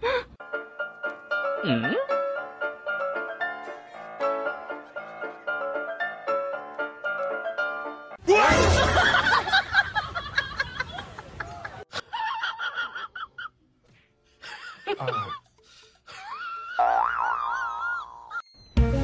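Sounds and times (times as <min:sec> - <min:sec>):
background music: 0:00.4 - 0:09.8, 0:18.7 - 0:19.0
loud laughter: 0:08.3 - 0:13.6, 0:14.5 - 0:15.4.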